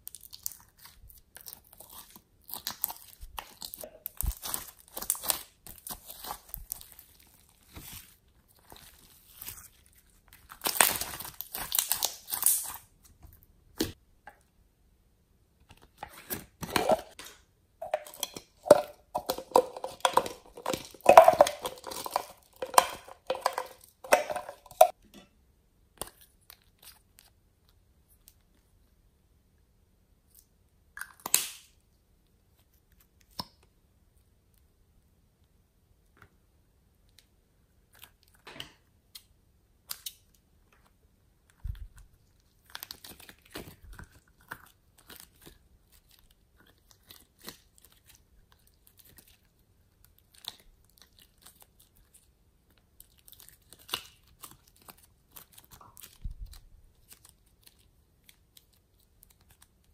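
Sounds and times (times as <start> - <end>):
slime crackling and squelching: 0.0 - 14.0, 15.8 - 25.0, 41.4 - 59.9.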